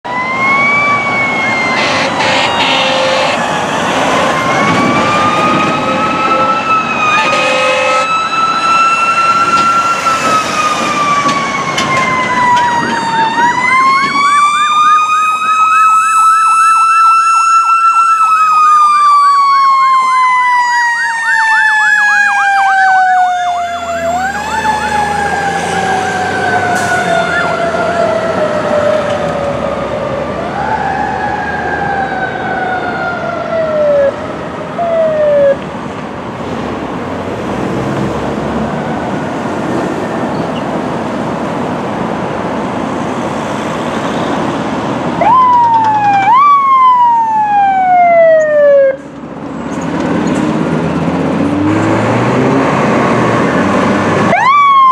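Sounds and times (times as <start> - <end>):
electronic siren wailing: 0.1 - 34.2, 34.8 - 35.6, 45.2 - 49.1, 54.3 - 54.9
siren rapid yelp: 0.1 - 35.6, 45.2 - 49.1, 54.3 - 54.9
horn blast: 1.7 - 3.4, 7.2 - 8.1.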